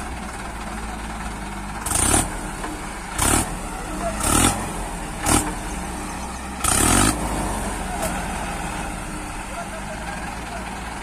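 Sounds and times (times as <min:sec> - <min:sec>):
diesel engines running under load: 0:00.0 - 0:11.0.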